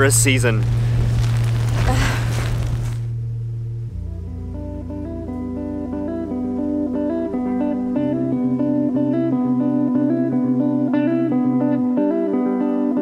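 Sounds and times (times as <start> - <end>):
bass line: 0.0 - 12.0
plucked string instrumental: 3.0 - 13.0.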